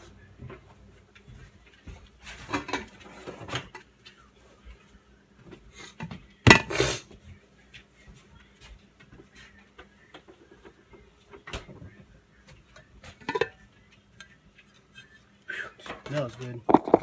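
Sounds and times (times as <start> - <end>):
metal bowl and plate clattering: 2.4 - 3.8, 13.0 - 13.6, 16.6 - 17.0.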